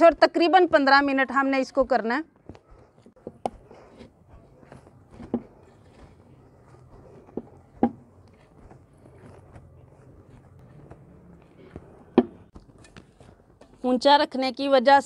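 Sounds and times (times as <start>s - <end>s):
hands kneading sticky dough: 2.4s - 13.8s.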